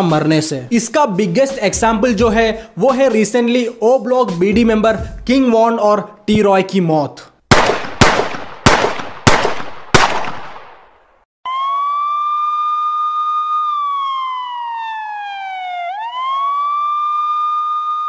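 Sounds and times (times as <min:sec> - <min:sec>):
gunshot bangs: 0:07.5 - 0:10.9
police siren wailing: 0:11.5 - 0:18.0.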